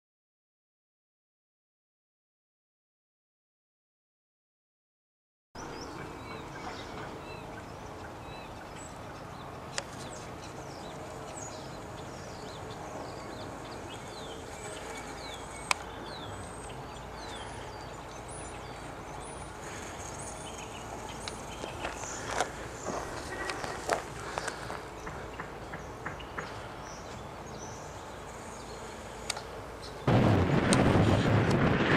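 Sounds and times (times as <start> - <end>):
birds chirping: 5.6 - 30.2
footsteps on dirt trail: 20.6 - 26.6.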